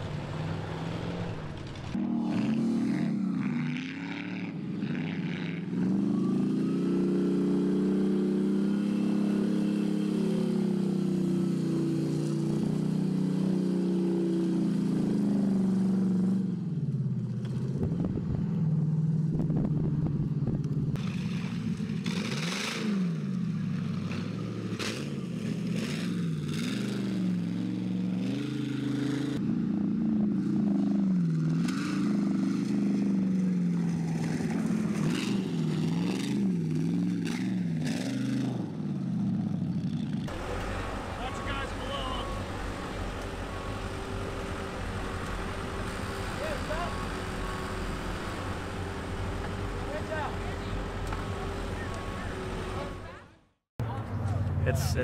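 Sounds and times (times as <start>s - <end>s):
buggy engine revving: 0.0s - 55.0s.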